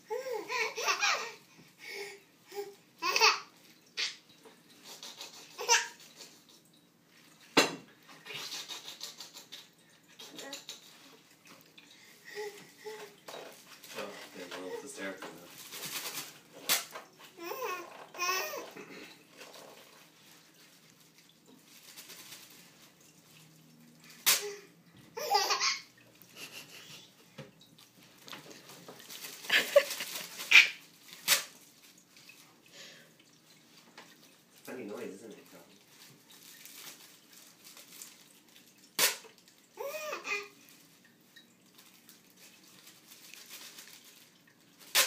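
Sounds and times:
baby laughing: 0:00.1 - 0:01.4, 0:02.5 - 0:04.2, 0:04.8 - 0:06.4, 0:08.3 - 0:11.1, 0:17.4 - 0:18.8, 0:24.3 - 0:27.2, 0:29.4 - 0:30.8, 0:39.8 - 0:40.6
baby squealing laugh: 0:00.4 - 0:01.4, 0:25.2 - 0:25.9, 0:29.5 - 0:30.8
plastic packaging crinkling: 0:15.4 - 0:16.9, 0:20.6 - 0:22.9, 0:28.9 - 0:32.1, 0:35.9 - 0:38.9, 0:41.7 - 0:45.0
sharp snap: 0:24.2 - 0:24.5, 0:39.0 - 0:39.3.

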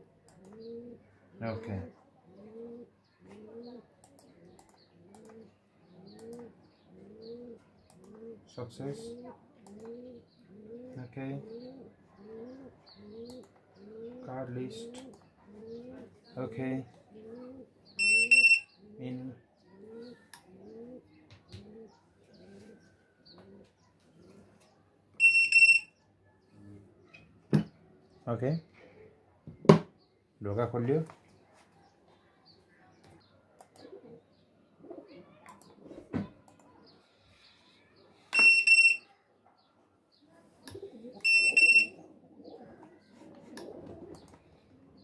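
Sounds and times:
bird cooing: 0:00.4 - 0:16.3, 0:17.0 - 0:24.5, 0:33.8 - 0:36.9, 0:40.7 - 0:45.0
card reader beep: 0:18.0 - 0:18.6, 0:25.2 - 0:25.9, 0:38.3 - 0:39.0, 0:41.2 - 0:41.9.

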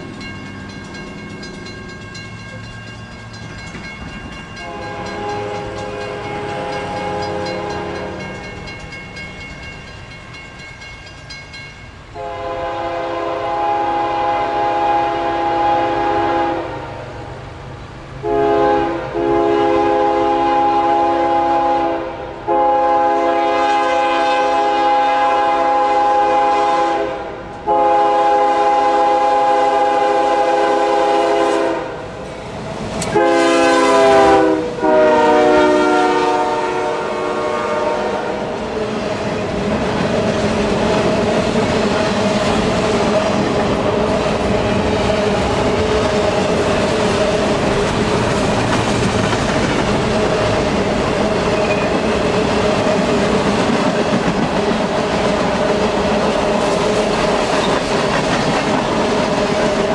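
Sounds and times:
train rumble and clickety-clack: 0:00.0 - 0:59.9
locomotive air horn blasts: 0:04.6 - 0:08.3, 0:12.2 - 0:16.9, 0:18.2 - 0:32.1, 0:33.1 - 0:38.5.

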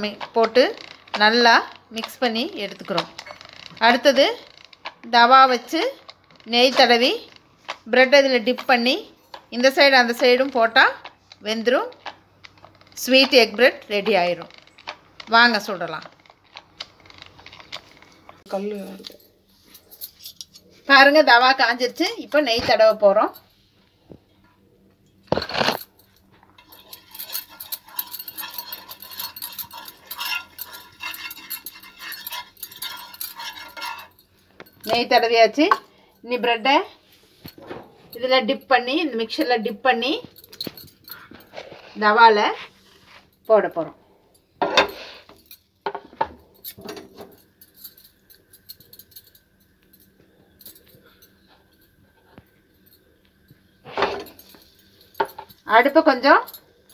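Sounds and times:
utensils knocking and clinking: 0:00.0 - 0:20.6, 0:25.2 - 0:35.9, 0:44.6 - 0:51.9, 0:52.8 - 0:56.6
metal spoon scraping iron griddle: 0:26.6 - 0:35.8.

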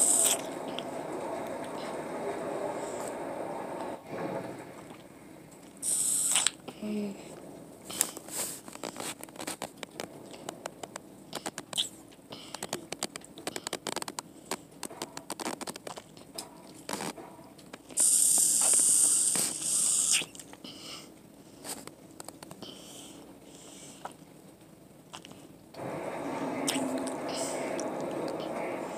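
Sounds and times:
child sucking from sippy cup: 0:00.0 - 0:00.8, 0:05.8 - 0:06.6, 0:17.9 - 0:20.4
loud hissing rush: 0:00.0 - 0:04.2, 0:05.8 - 0:06.6, 0:25.8 - 0:28.9.

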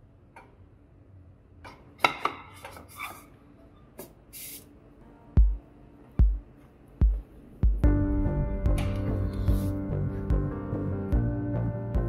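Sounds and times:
short hiss: 0:04.3 - 0:04.7
deep bass music beat: 0:06.2 - 0:12.0.

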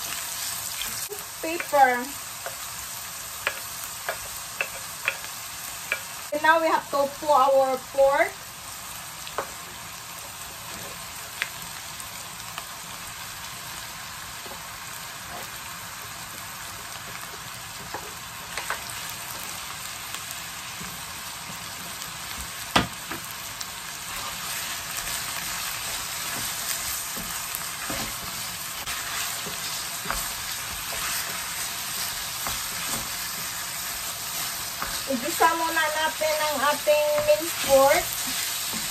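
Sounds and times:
meat sizzling in a frying pan: 0:00.0 - 0:38.9
wooden spoon stirring: 0:24.1 - 0:38.9.

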